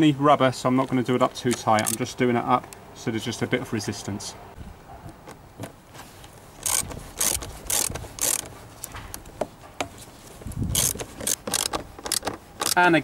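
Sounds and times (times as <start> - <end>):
socket ratchet clicking: 1.8 - 2.0, 6.6 - 9.0, 10.7 - 12.8.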